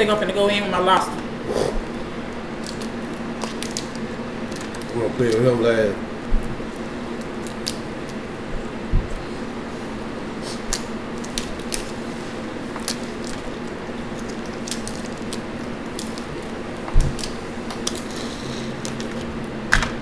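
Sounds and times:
box fan humming: 0.0s - 20.0s
shells cracking: 2.5s - 5.4s, 6.5s - 8.2s, 10.6s - 19.9s
dull thump: 8.9s - 9.2s.

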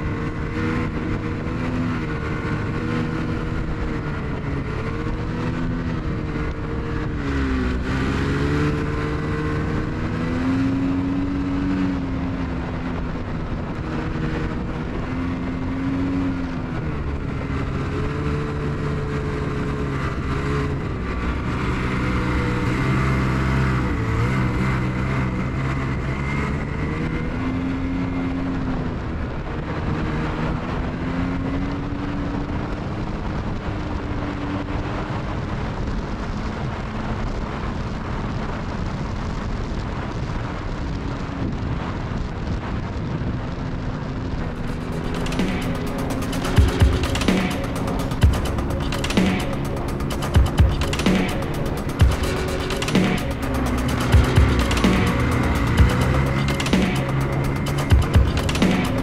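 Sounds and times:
steady rushing noise: 0.0s - 31.0s, 31.7s - 59.0s
snowmobile engine running: 0.0s - 33.7s, 43.2s - 59.0s.

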